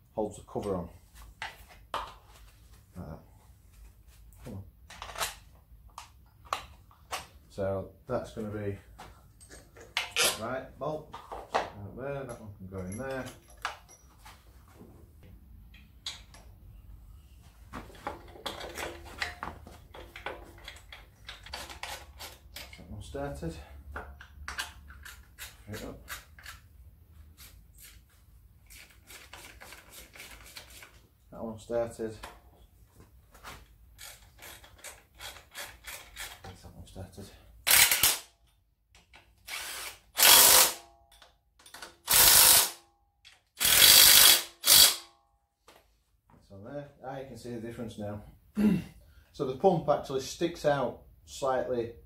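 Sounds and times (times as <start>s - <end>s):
metal bolts clinking and scraping: 4.9s - 5.5s, 9.3s - 10.4s, 11.1s - 14.4s, 17.9s - 23.0s
electric ratchet running: 39.5s - 40.8s, 42.1s - 42.8s, 43.6s - 45.0s.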